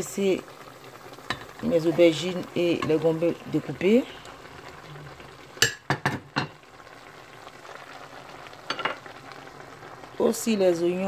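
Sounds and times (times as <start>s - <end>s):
vegetables sizzling in a pot: 0.0s - 11.0s.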